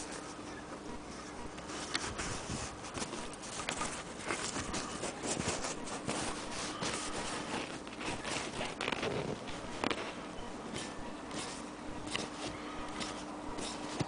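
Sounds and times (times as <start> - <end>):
cloth rustling and rubbing: 1.6 - 14.0.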